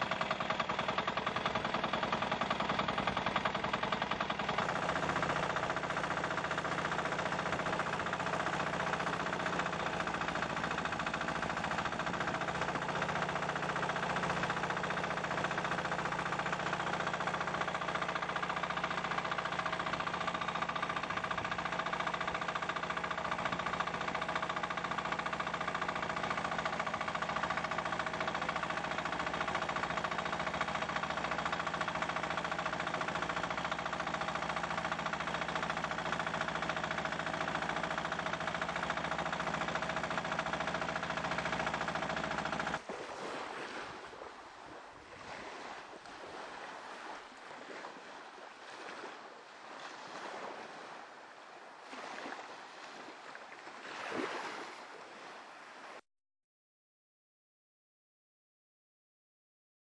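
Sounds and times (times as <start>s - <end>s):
boat engine running: 0.0s - 56.0s
soft waves: 42.8s - 56.0s.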